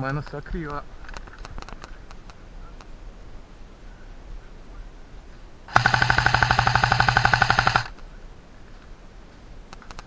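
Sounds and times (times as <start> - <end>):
low hum: 4.7 - 9.6
airsoft rifle full-auto burst: 5.7 - 7.9.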